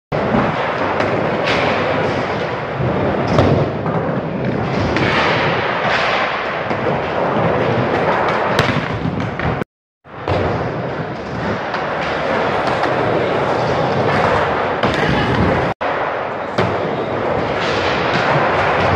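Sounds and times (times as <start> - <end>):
skateboard wheels rolling on ramps: 0.2 - 18.9
skateboards clacking on ramps: 10.2 - 18.9.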